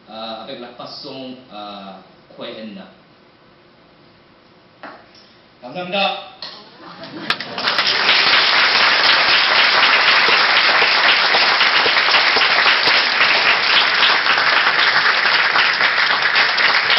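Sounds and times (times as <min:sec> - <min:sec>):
audience applauding: 0:07.0 - 0:16.9.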